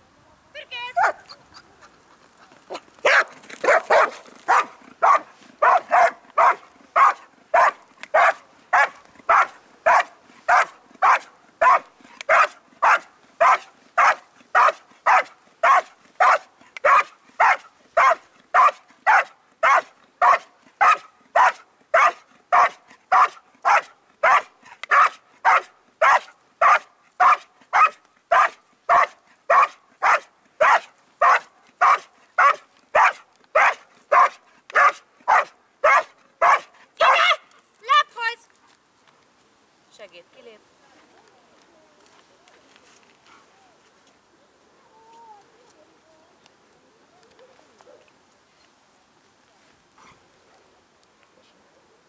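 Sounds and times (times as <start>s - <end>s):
dog barking rhythmically: 3.1s - 37.4s.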